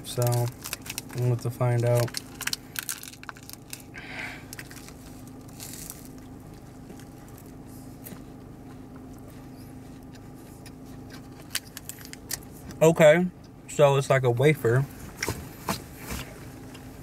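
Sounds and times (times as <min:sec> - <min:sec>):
biting and chewing candy bar: 0:00.0 - 0:09.2.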